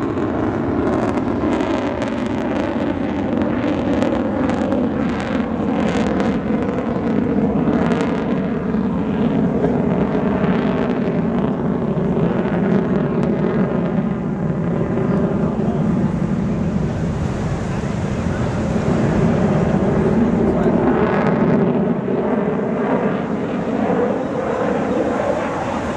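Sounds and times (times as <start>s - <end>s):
fighter jet engines roaring: 0.0s - 25.9s.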